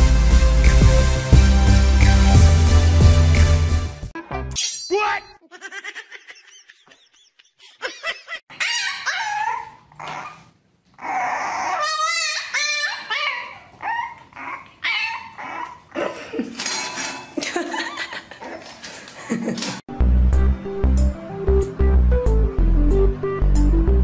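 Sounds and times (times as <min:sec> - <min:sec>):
dogs whining yipping and barking: 0:08.5 - 0:16.0.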